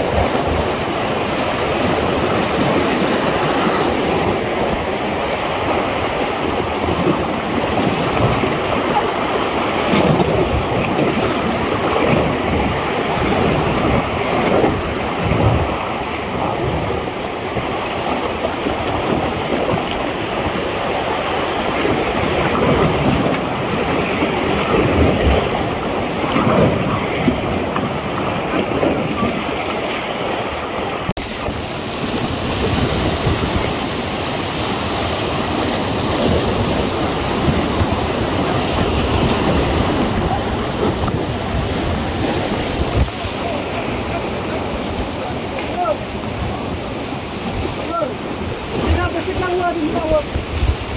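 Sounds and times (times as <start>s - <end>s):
whitewater rapids rushing: 0.0s - 50.9s
wind buffeting microphone: 0.0s - 50.9s.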